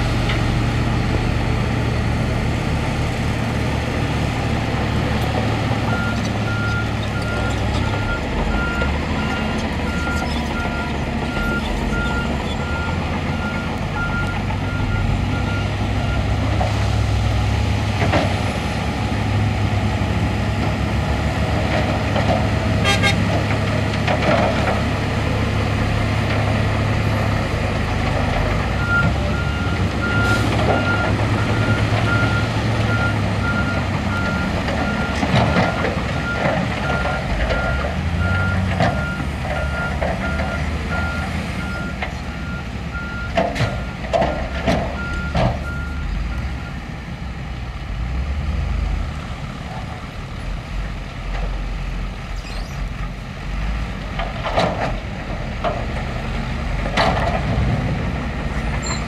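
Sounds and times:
truck diesel engine running: 0:00.0 - 0:44.1.

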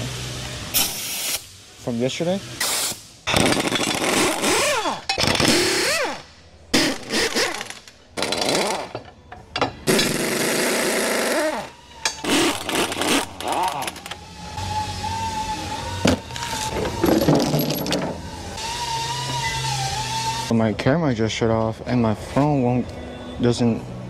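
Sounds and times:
pneumatic impact wrench bursts: 0:00.7 - 0:01.5, 0:02.6 - 0:09.0, 0:09.9 - 0:14.2.

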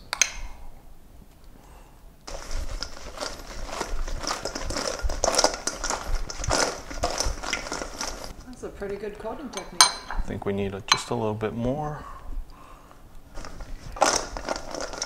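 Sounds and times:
food tumbling in metal bowl: 0:02.3 - 0:09.3, 0:13.3 - 0:15.0.

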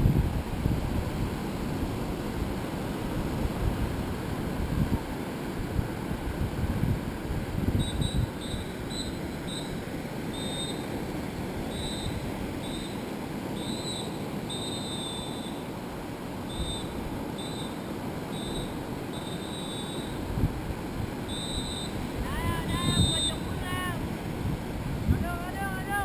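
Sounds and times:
wind buffeting microphone: 0:00.0 - 0:09.7, 0:20.1 - 0:26.0
surf washing onto beach: 0:00.0 - 0:13.6, 0:15.6 - 0:26.0
high thin tone: 0:21.3 - 0:24.0.

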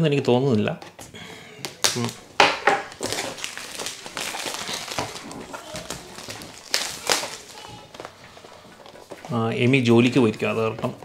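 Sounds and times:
cardboard rustling and scraping: 0:02.9 - 0:11.0.

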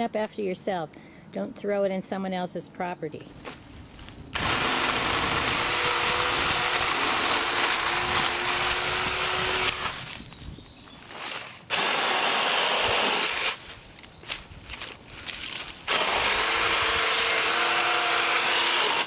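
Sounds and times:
battery lopper chain cutting branches: 0:04.4 - 0:10.3, 0:11.1 - 0:19.0.

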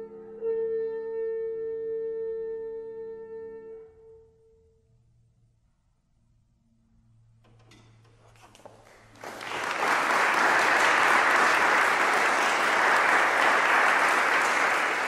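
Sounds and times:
audience applauding: 0:08.7 - 0:15.0.

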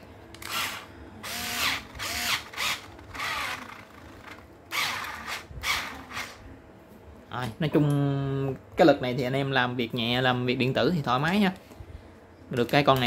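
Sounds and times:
electric screwdriver motor spinning: 0:00.4 - 0:06.4.

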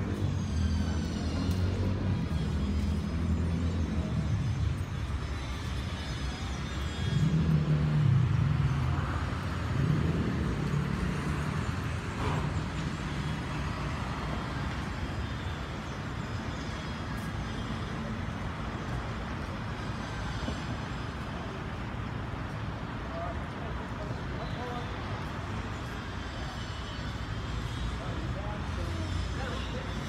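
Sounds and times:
steady street hum: 0:00.0 - 0:30.0
vehicle engine drone: 0:00.0 - 0:30.0.

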